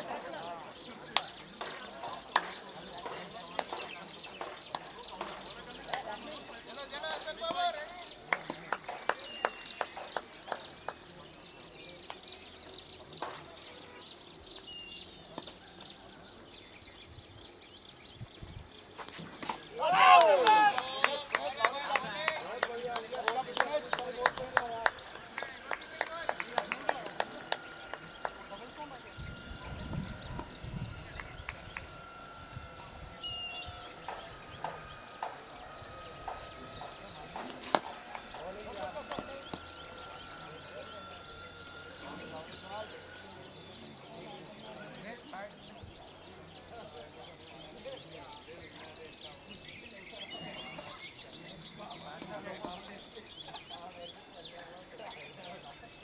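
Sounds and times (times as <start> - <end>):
faint bird chirps and trills: 0.0 - 19.8, 21.4 - 56.0
sharp claps or knocks: 1.1 - 6.4, 8.2 - 11.2, 19.0 - 29.1, 34.0 - 42.9
hollow knocking bird notes: 22.6 - 44.5.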